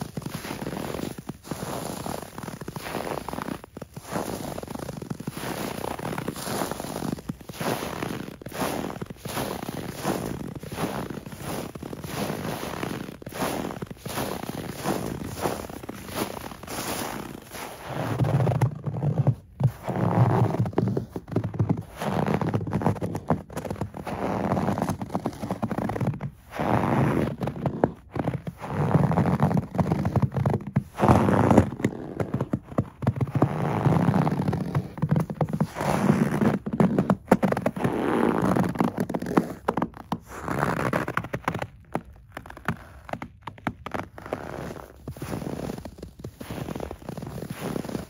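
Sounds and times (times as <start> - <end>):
footsteps crunching on snow: 0.0 - 48.0.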